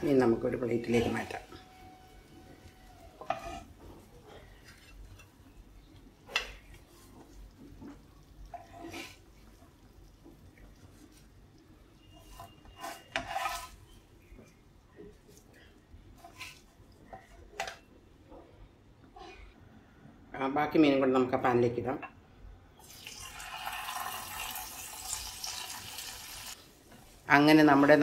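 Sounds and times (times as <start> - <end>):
spatula scraping frying pan: 0.8 - 5.6, 6.2 - 11.4, 12.0 - 14.5, 16.2 - 17.7.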